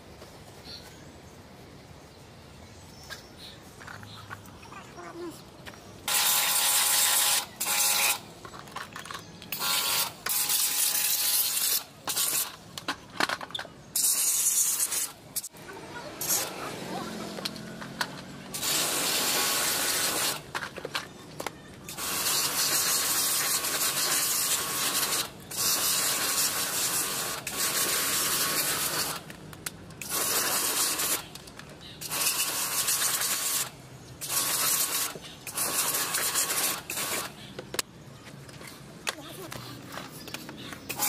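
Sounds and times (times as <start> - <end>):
pressure washer spraying on plastic: 6.1 - 8.2, 9.5 - 12.6, 14.0 - 15.6, 16.2 - 16.6, 18.5 - 20.6, 21.9 - 29.3, 30.0 - 31.3, 32.0 - 37.5, 39.2 - 41.0.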